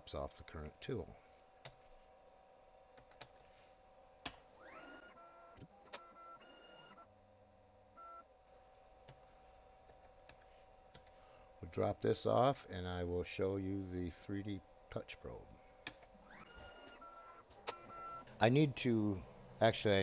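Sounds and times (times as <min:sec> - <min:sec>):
router motors whining: 0:04.6 - 0:07.0.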